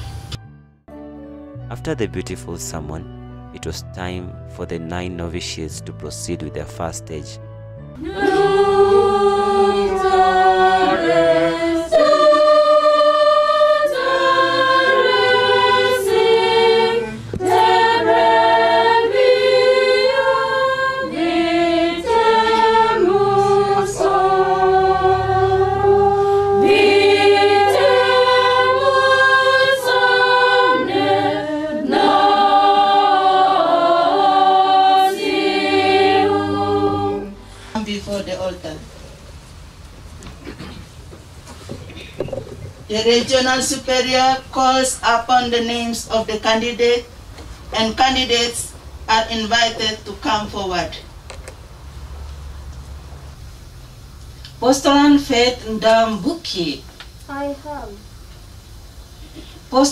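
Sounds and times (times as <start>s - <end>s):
choir singing a hymn: 8.0s - 38.5s, 42.9s - 47.1s.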